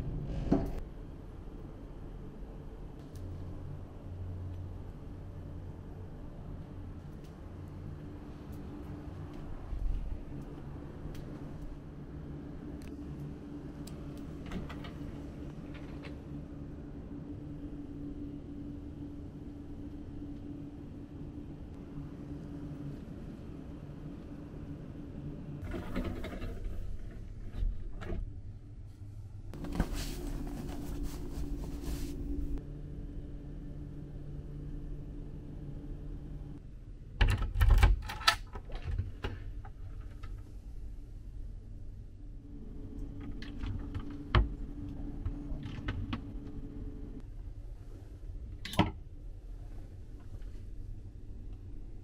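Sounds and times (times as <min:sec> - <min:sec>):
steady low hum: 0:00.0 - 0:37.2, 0:39.1 - 0:52.0
bed sheet and pillow rustling: 0:29.6 - 0:32.6.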